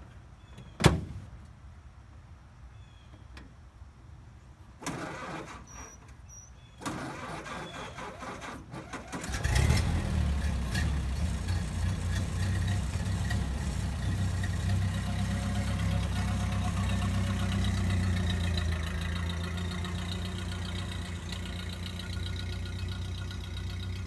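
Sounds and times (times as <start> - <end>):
engine cranking on starter: 4.8 - 6.0, 6.8 - 24.0
engine idling: 9.2 - 24.0.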